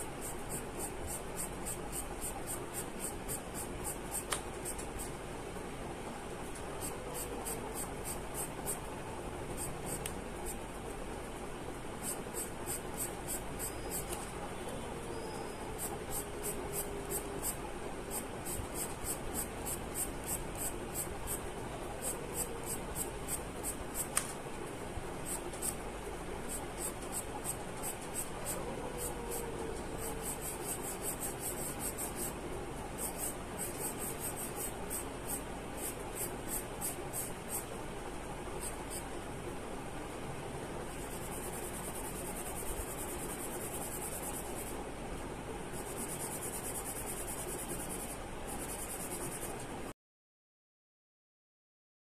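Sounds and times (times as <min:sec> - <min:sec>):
pencil scratching on paper: 0:00.0 - 0:05.1, 0:12.0 - 0:14.2, 0:15.8 - 0:21.4, 0:26.5 - 0:32.4, 0:33.0 - 0:37.7, 0:40.9 - 0:44.7, 0:45.8 - 0:49.6.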